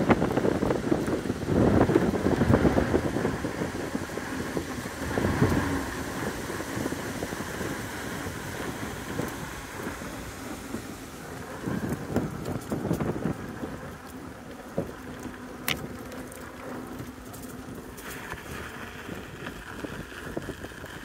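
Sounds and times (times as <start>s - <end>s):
tyre rumbling over wooden planks: 0.0s - 21.0s
wind rushing over microphone: 0.0s - 21.0s.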